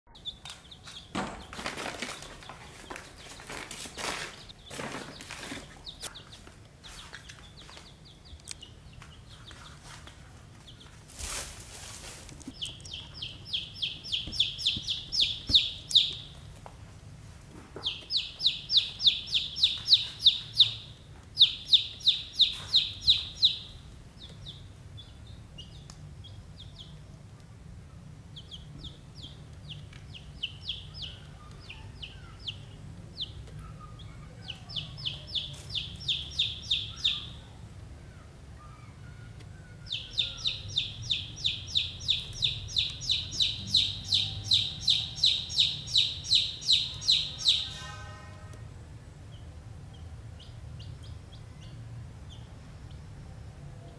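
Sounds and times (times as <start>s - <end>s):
chicks peeping: 0.1s - 16.7s, 17.5s - 37.6s, 38.2s - 47.9s, 49.3s - 53.9s.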